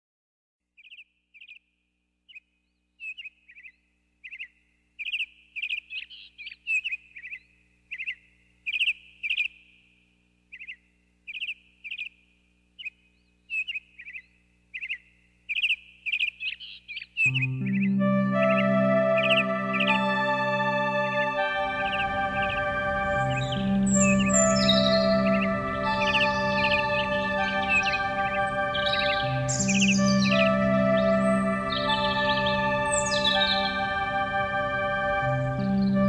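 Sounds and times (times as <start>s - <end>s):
small birds chirping: 0.7s - 36.0s
music: 17.3s - 36.0s.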